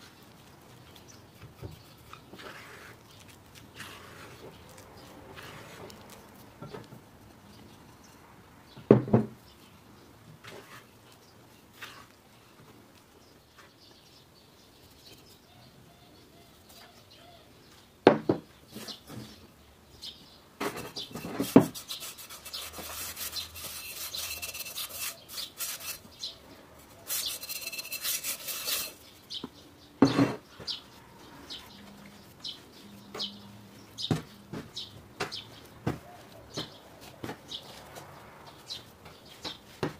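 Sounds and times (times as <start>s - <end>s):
spatula scraping dough in bowl: 1.4s - 6.1s, 20.6s - 26.2s, 27.0s - 29.0s
rubbing and rustling: 20.6s - 29.4s.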